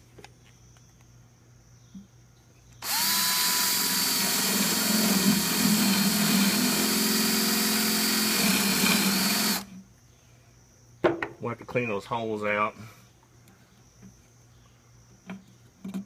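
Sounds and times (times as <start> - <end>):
cordless drill boring into wood: 2.8 - 9.7.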